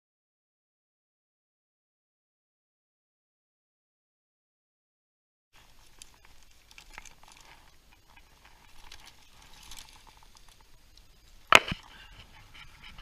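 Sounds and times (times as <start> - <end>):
clothing and gear rustling: 5.6 - 10.8.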